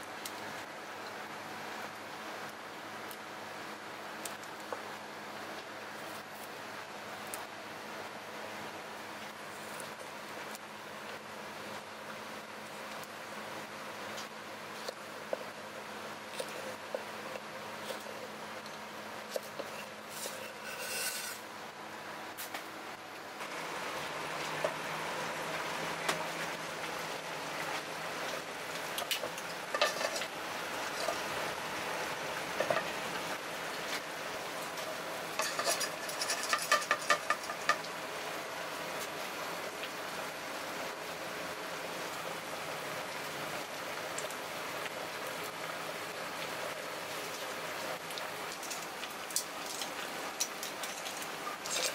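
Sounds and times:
garlic sizzling in oil: 14.2 - 21.5, 23.4 - 39.4
knife on wooden cutting board: 19.6 - 21.4.

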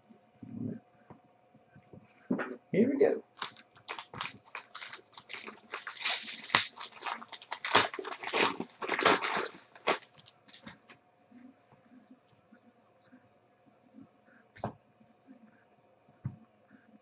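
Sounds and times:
foil wrapper crackling: 3.3 - 10.8.

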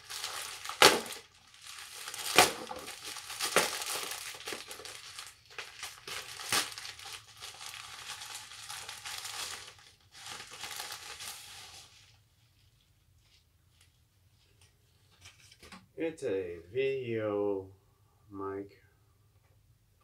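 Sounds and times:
plastic bag crinkling and tearing: 0.0 - 12.2.

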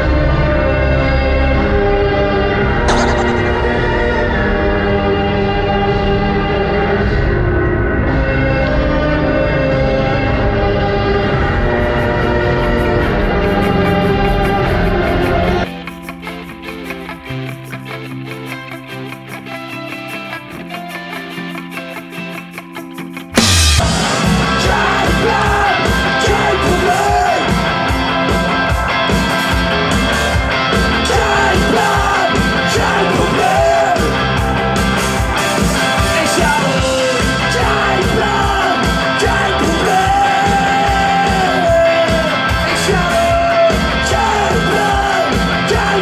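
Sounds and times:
punk rock band playing: 15.2 - 46.0
person singing lead vocal: 24.2 - 27.9, 30.9 - 34.5, 36.0 - 46.0.

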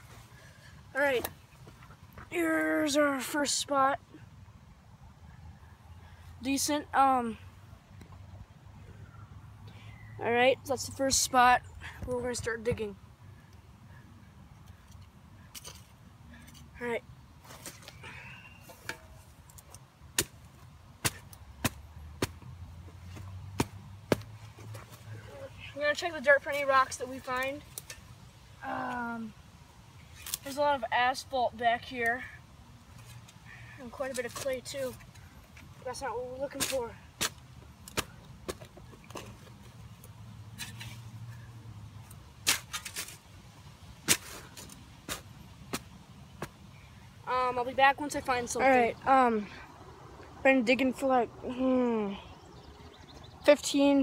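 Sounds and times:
shovel striking stony ground: 21.0 - 22.4, 36.5 - 38.6, 42.4 - 43.2, 44.0 - 46.6.

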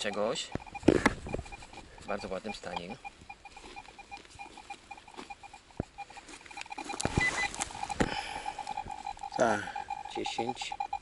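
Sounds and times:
metal detector beeping: 0.0 - 11.0
rustling: 0.0 - 11.0.

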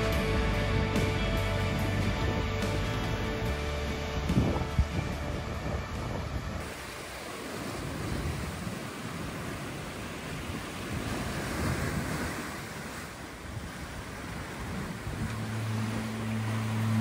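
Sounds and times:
surf breaking on rocks: 0.0 - 17.0
low steady hum: 14.2 - 17.0.

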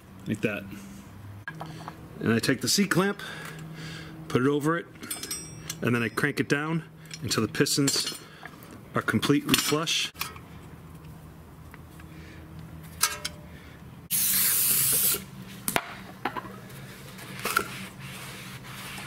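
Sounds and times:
aerosol spray hiss: 14.1 - 15.2.

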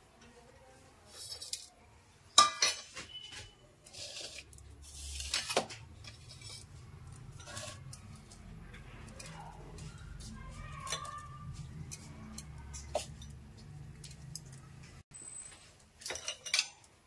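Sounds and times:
steel plate clinking on bowl: 2.4 - 3.0.

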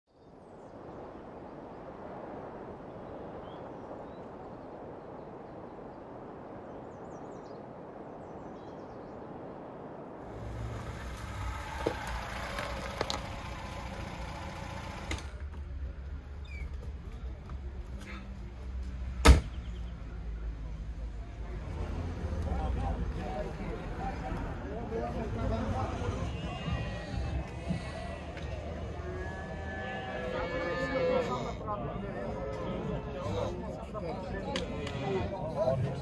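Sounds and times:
steady rushing noise: 0.3 - 15.9
car engine idling: 10.3 - 15.4.

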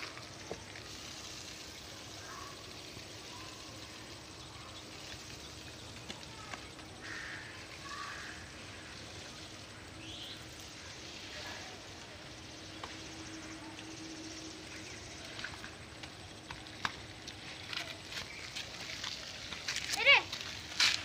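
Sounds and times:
footsteps on brick path: 5.1 - 8.3, 14.7 - 21.0.

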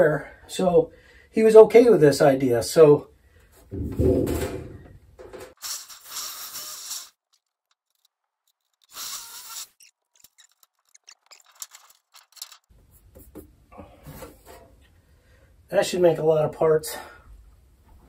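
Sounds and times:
aluminium sheet scraping: 3.6 - 12.7.

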